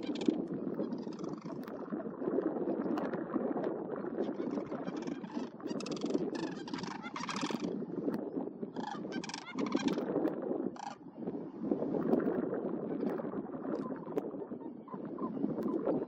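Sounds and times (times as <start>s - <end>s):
cranes calling: 0.0s - 1.6s, 4.4s - 7.7s, 8.8s - 10.0s.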